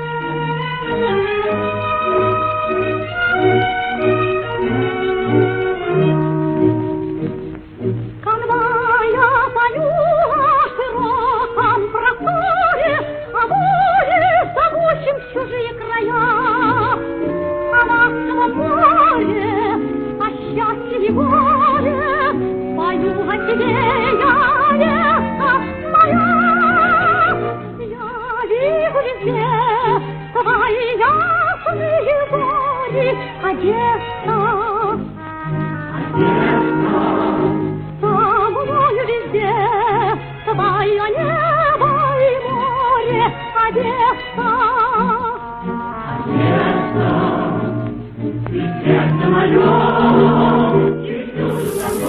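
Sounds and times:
soft orchestral accompaniment: 0.0 - 52.0
woman singing with vibrato: 8.2 - 37.4, 48.8 - 52.0.

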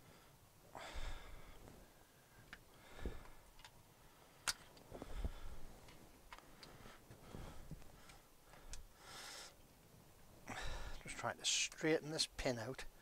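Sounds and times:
small metallic clicks: 3.2 - 3.8, 4.4 - 4.9.

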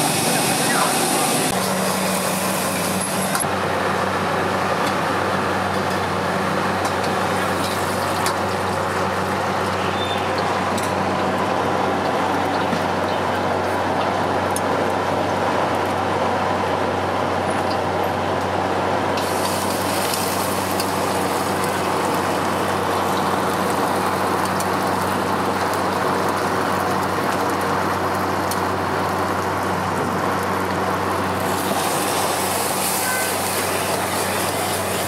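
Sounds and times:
gas wok burner roaring: 0.0 - 35.0
noodles sizzling in a wok: 19.2 - 28.4, 31.2 - 35.0.

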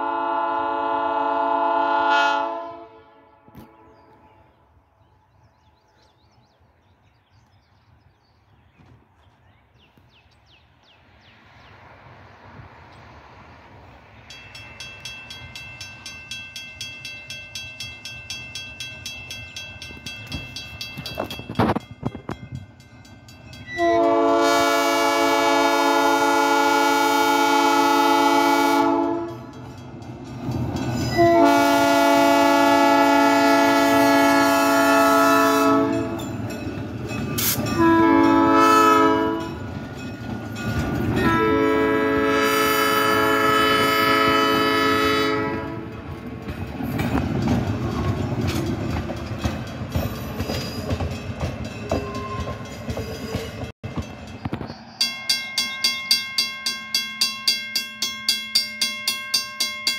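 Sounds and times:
train air horn: 0.0 - 4.0, 23.7 - 29.6, 31.1 - 36.2, 37.4 - 39.6, 41.1 - 46.0
bell ringing: 14.3 - 23.9, 47.9 - 59.9.

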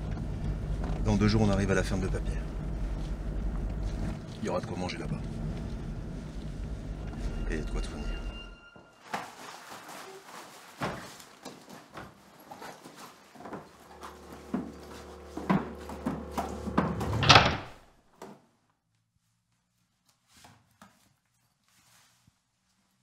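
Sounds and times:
low steady hum: 0.0 - 8.6, 13.7 - 17.3.

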